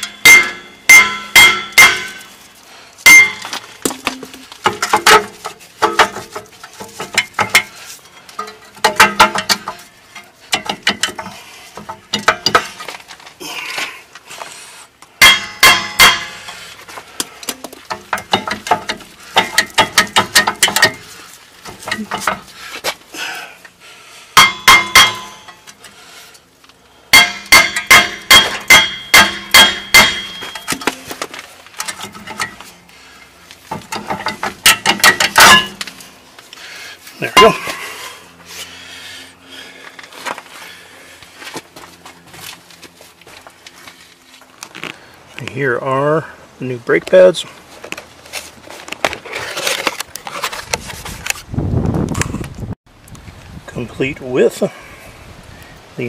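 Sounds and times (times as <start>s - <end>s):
hammer clanking on metal: 0.0s - 2.3s, 3.1s - 7.8s, 8.4s - 9.8s, 10.5s - 12.8s, 15.2s - 16.6s, 17.5s - 21.1s, 24.4s - 25.6s, 27.1s - 31.0s, 33.7s - 35.9s.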